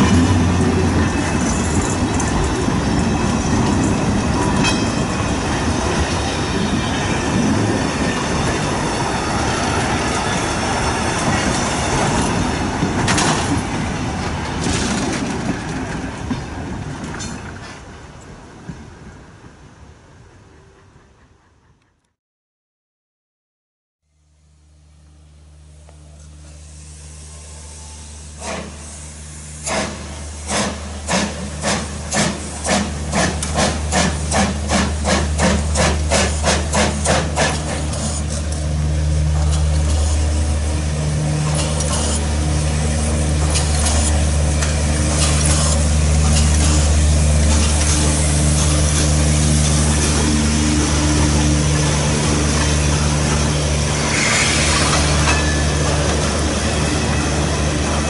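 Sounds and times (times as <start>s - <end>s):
train rolling past: 0.0s - 22.0s, 24.9s - 58.0s
steam locomotive exhaust chuffs: 25.1s - 58.0s.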